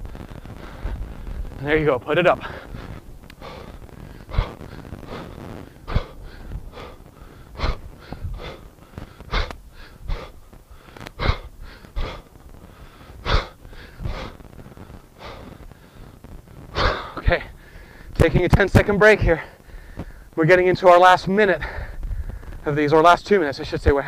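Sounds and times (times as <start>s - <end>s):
man breathing hard: 0.0s - 1.6s, 2.4s - 18.2s, 19.3s - 20.3s, 21.6s - 22.6s
sharp forceful exhales: 2.4s - 18.1s.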